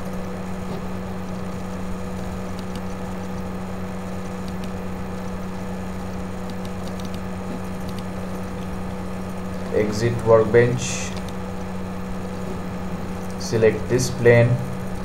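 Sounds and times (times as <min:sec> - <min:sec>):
low electrical hum: 0:00.0 - 0:15.0
computer mouse clicks: 0:01.3 - 0:03.5, 0:04.2 - 0:05.4, 0:06.1 - 0:08.7, 0:11.1 - 0:11.4.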